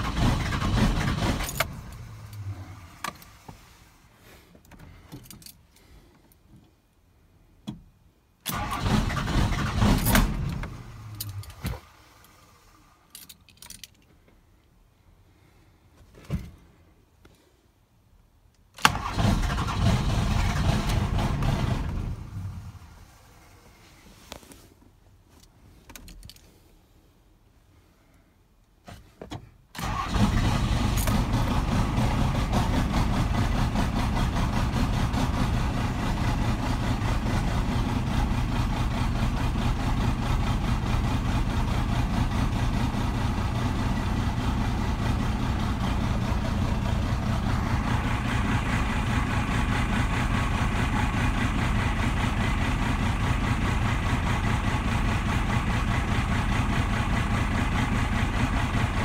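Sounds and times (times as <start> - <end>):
diesel engine cranking: 0.0 - 3.4, 8.4 - 13.8, 18.8 - 23.5, 29.7 - 59.0
diesel engine idling: 29.8 - 59.0.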